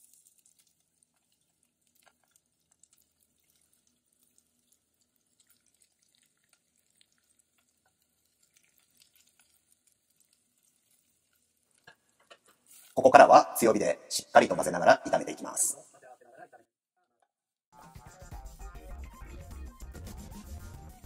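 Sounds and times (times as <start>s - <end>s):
oil sizzling in frying pan: 0.0s - 13.0s
small crackles: 0.0s - 13.0s.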